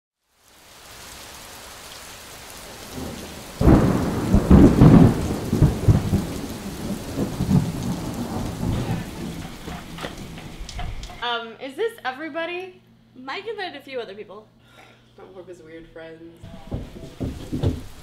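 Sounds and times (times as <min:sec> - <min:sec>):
steady rain falling: 0:00.2 - 0:11.2, 0:16.4 - 0:18.0
thunder crack rolling: 0:02.7 - 0:11.2, 0:16.5 - 0:18.0.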